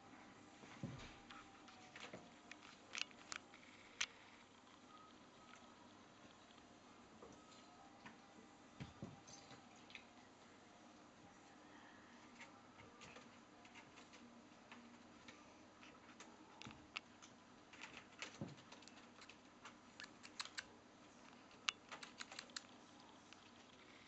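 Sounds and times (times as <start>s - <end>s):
kittens clicking in wicker basket: 21.4s - 22.8s.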